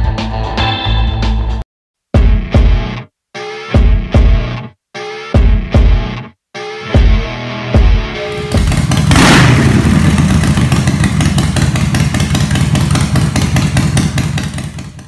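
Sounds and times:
motorcycle engine running: 8.3 - 15.0.

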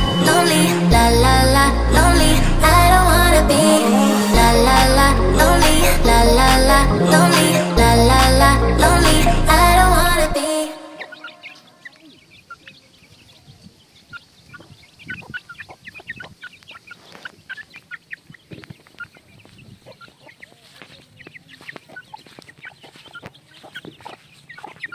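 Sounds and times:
chicks peeping: 10.4 - 24.9
hen clucking: 10.9 - 12.9, 14.1 - 24.9.

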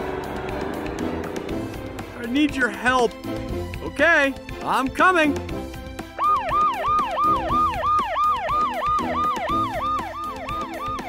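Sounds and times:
background music: 0.0 - 11.0
police siren yelping: 6.2 - 11.0.

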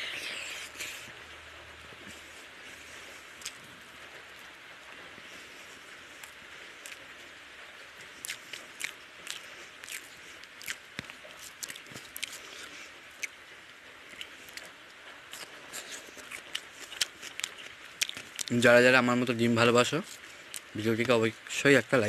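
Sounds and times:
steady hiss: 0.0 - 22.0
wet chewing and lip smacks: 2.0 - 3.7, 5.3 - 7.1, 8.1 - 13.4, 14.1 - 18.6, 20.0 - 21.1.

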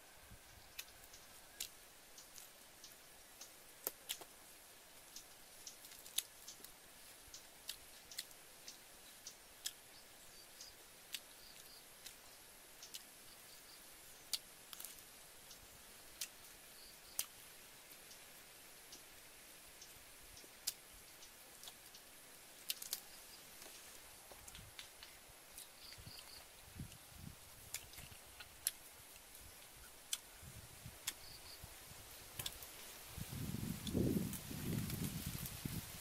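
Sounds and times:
faint steady hiss: 0.0 - 36.0
person chewing and smacking: 3.8 - 4.3, 21.6 - 21.8, 27.7 - 28.8.

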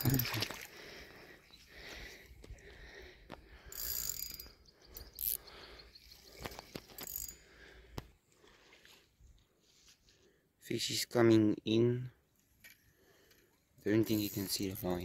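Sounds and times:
fishing reel whirring and clicking: 3.7 - 5.5, 6.4 - 7.4, 14.1 - 14.8.

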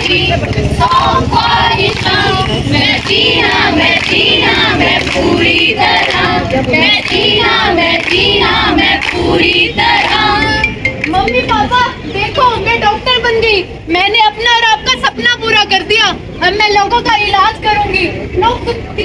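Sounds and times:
female choir singing: 0.0 - 10.6.

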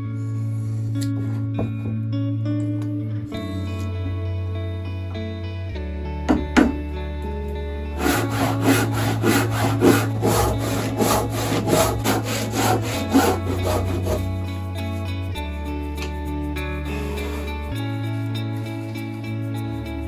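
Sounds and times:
handsaw cutting wood: 8.0 - 14.5.

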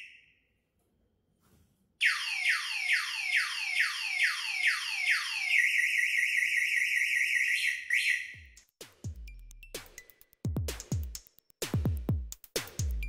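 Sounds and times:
electronic alarm siren: 2.0 - 8.6.

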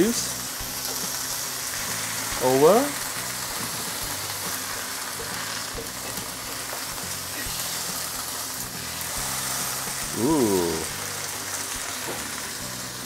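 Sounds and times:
fish sizzling in a pan: 0.0 - 13.0
man saying ooh: 10.0 - 10.9.

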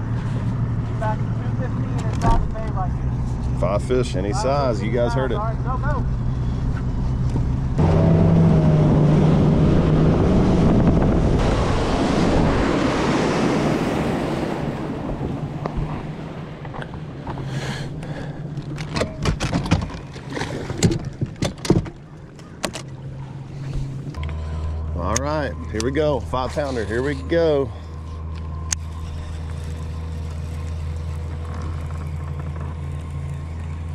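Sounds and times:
outboard motor running: 0.0 - 33.9
wind and water rushing: 7.8 - 18.5.

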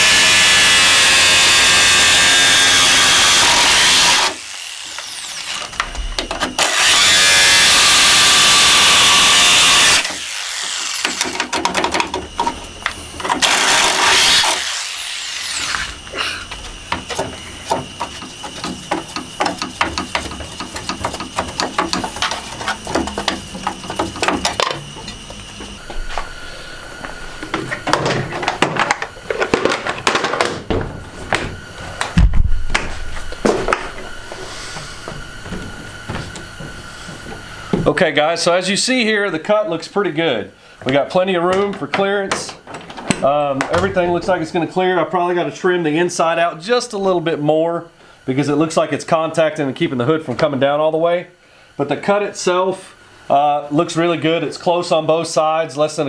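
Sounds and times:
jigsaw cutting sheet metal: 0.0 - 25.2.

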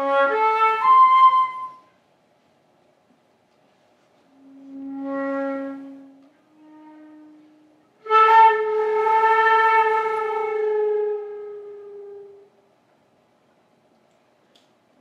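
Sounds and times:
flute playing held notes: 0.0 - 2.0, 4.3 - 12.6.

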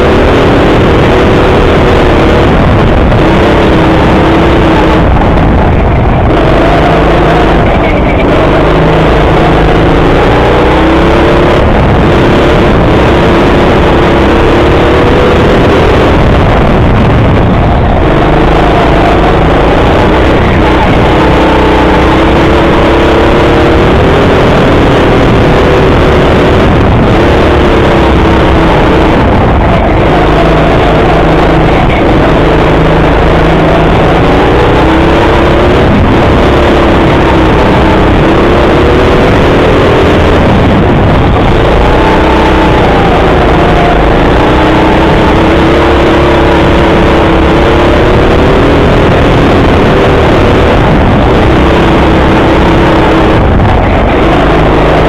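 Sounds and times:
go-kart motor revving: 0.0 - 55.0
road and wind noise: 0.0 - 55.0.

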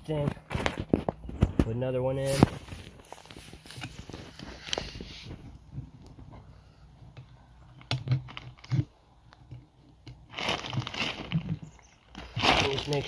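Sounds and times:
tire crunching and rustling: 0.0 - 6.6, 10.2 - 13.0.

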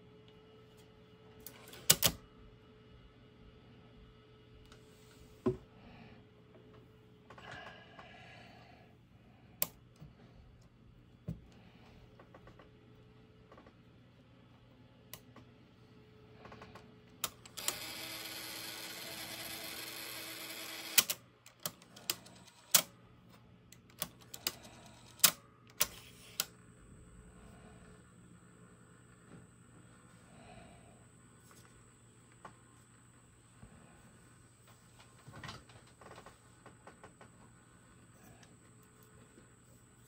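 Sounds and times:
sharp mechanical clicks: 1.4 - 2.2, 17.2 - 23.0, 23.7 - 26.6
motor and gears whirring: 16.4 - 22.9.

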